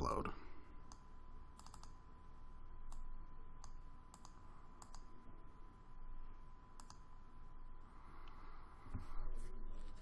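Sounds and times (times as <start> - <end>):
computer mouse double-clicks: 1.6 - 2.0, 3.6 - 5.0, 6.8 - 7.0.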